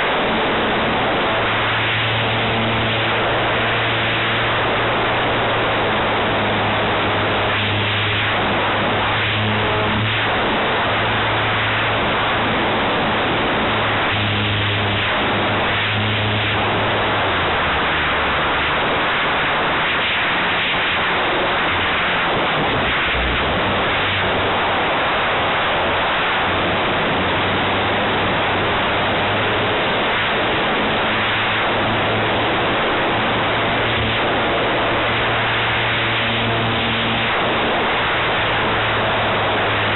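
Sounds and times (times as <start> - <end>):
model plane engine and propeller: 0.0 - 39.9.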